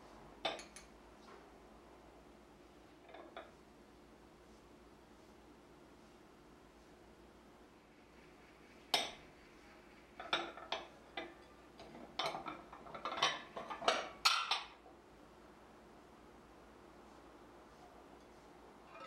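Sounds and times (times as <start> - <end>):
ceramic plates clinking: 10.1 - 14.8.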